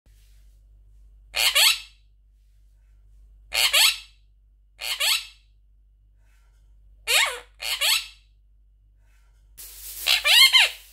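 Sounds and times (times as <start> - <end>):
parakeet calls: 1.3 - 2.0, 3.5 - 4.2, 4.8 - 5.4, 7.1 - 8.2, 10.0 - 10.8.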